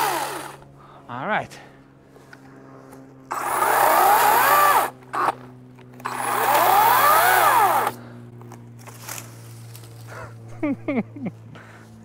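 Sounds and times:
chainsaw cutting into tree: 0:00.0 - 0:00.6, 0:03.3 - 0:05.4, 0:06.0 - 0:08.0.

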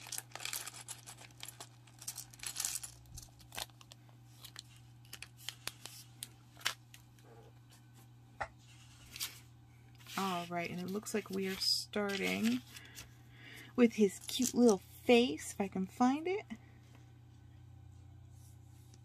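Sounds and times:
plastic pieces clattering: 0:00.0 - 0:05.3
plastic bag crinkling: 0:00.0 - 0:06.8
low steady hum: 0:00.0 - 0:19.0.

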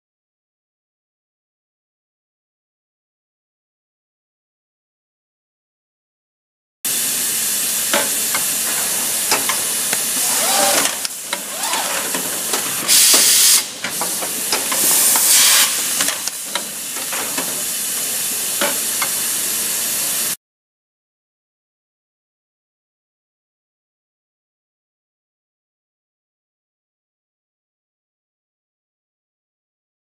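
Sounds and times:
machine hissing: 0:06.9 - 0:20.4
pneumatic air bursts: 0:07.9 - 0:17.0.

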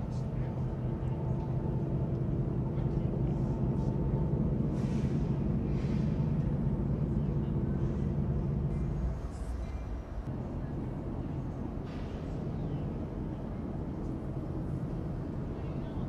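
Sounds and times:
model train hum and rumble: 0:00.0 - 0:16.0.

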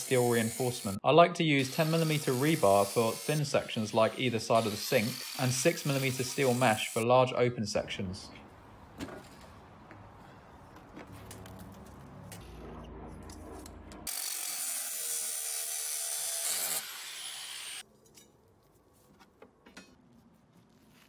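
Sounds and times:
angle grinder cutting steel: 0:00.0 - 0:01.0, 0:01.6 - 0:07.0, 0:14.0 - 0:17.8.

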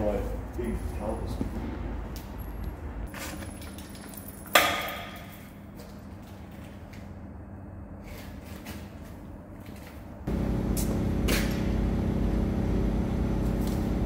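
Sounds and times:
lathe motor humming: 0:10.3 - 0:14.0.

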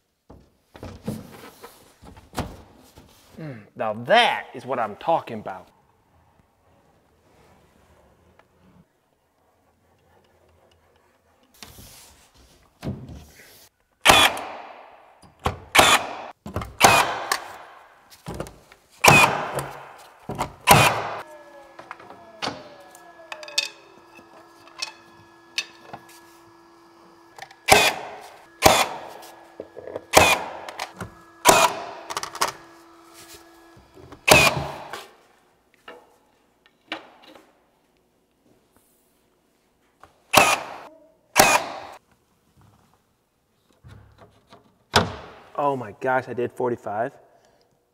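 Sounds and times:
nail gun shots: 0:14.0 - 0:15.0, 0:15.7 - 0:17.8, 0:19.0 - 0:20.0, 0:20.6 - 0:21.2, 0:27.6 - 0:29.1, 0:30.1 - 0:32.3, 0:34.3 - 0:34.9, 0:40.3 - 0:42.0.

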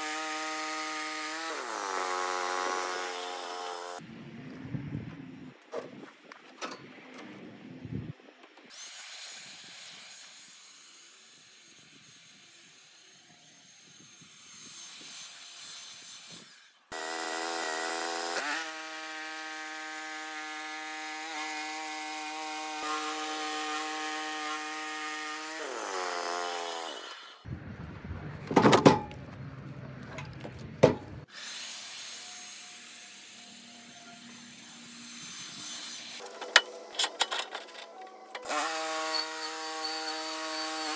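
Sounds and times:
sawmill engine and blade cutting: 0:00.0 - 0:04.0, 0:08.7 - 0:27.5, 0:31.2 - 0:40.9
wood knocks and clunks: 0:28.5 - 0:29.4, 0:30.1 - 0:31.2.

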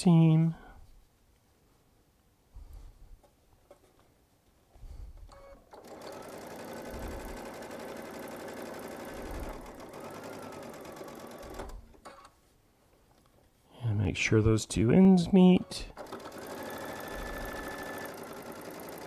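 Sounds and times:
sewing machine stitching: 0:05.3 - 0:12.3, 0:15.9 - 0:19.0.

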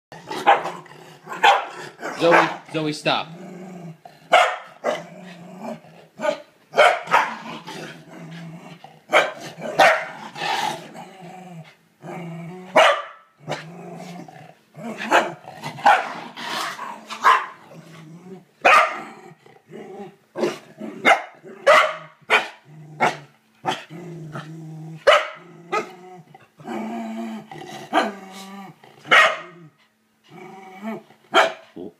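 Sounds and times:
puppy growling: 0:00.1 - 0:06.5, 0:07.1 - 0:12.8, 0:13.4 - 0:31.9
puppy barking: 0:00.4 - 0:00.7, 0:01.4 - 0:02.6, 0:04.3 - 0:05.0, 0:06.2 - 0:07.4, 0:09.1 - 0:10.2, 0:12.8 - 0:13.2, 0:15.1 - 0:16.2, 0:17.2 - 0:17.6, 0:18.6 - 0:19.0, 0:21.0 - 0:23.8, 0:25.0 - 0:25.9, 0:29.1 - 0:29.6, 0:31.3 - 0:31.6.

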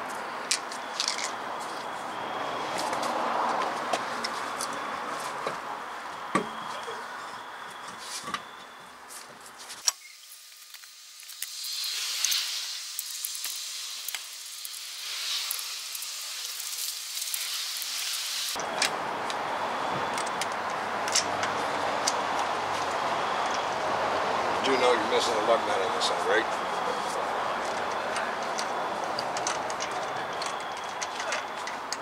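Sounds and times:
steady hiss: 0:09.8 - 0:20.6.

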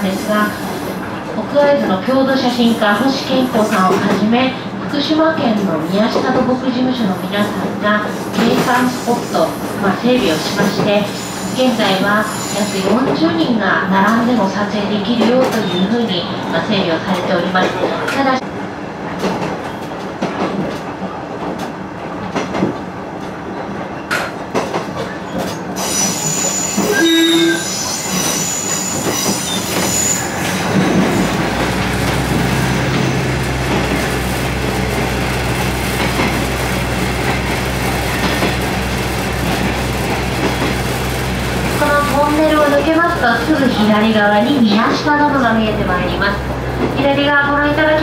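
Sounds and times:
train wheels squealing: 0:11.0 - 0:13.0, 0:25.1 - 0:31.4
rail joint clicks: 0:19.1 - 0:48.0
train running noise drone: 0:25.8 - 0:48.0.

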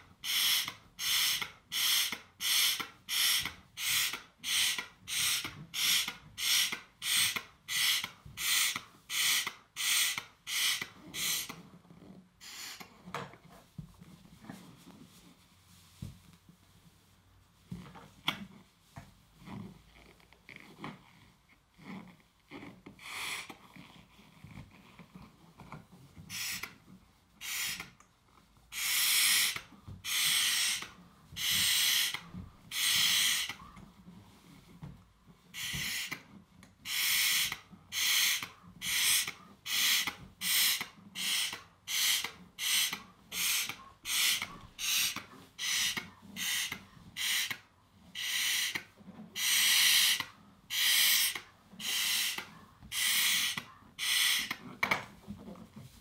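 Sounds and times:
hissing puffs of breath: 0:00.2 - 0:11.6, 0:28.7 - 0:33.6, 0:36.9 - 0:47.6, 0:49.4 - 0:54.6.

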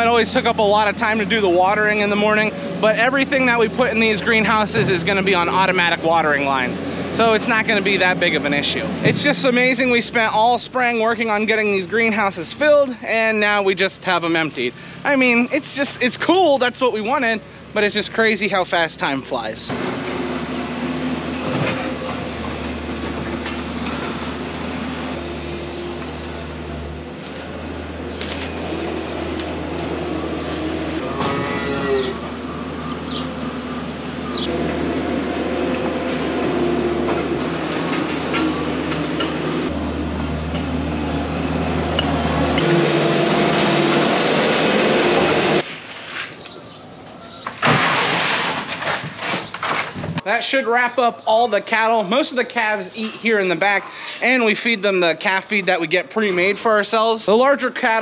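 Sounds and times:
low machine drone: 0:00.0 - 0:11.4, 0:19.7 - 0:45.6
cow mooing: 0:31.0 - 0:32.4.

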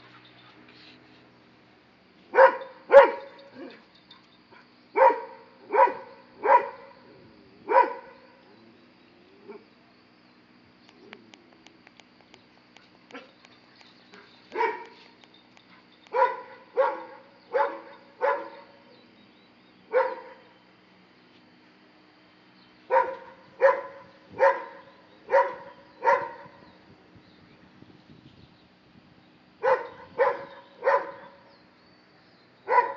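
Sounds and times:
dog barking: 0:02.3 - 0:03.8, 0:05.0 - 0:07.0, 0:07.7 - 0:08.2, 0:14.5 - 0:15.0, 0:16.1 - 0:18.8, 0:19.9 - 0:20.4, 0:22.9 - 0:26.6, 0:29.6 - 0:31.4, 0:32.7 - 0:32.9.

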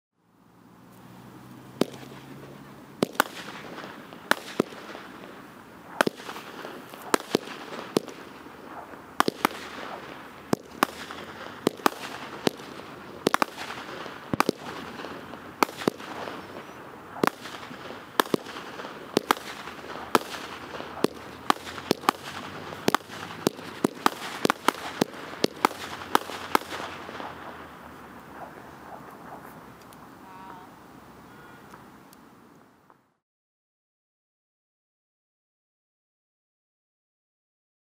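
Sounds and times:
firework hiss and crackle: 0:00.5 - 0:32.9
firework bangs: 0:00.9 - 0:30.6.

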